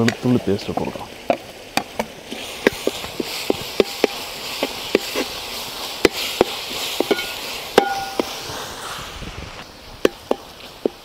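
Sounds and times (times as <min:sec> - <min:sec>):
oil sizzling: 0:00.0 - 0:11.0
ladle knocking and scraping pot: 0:01.8 - 0:05.3, 0:06.0 - 0:08.4.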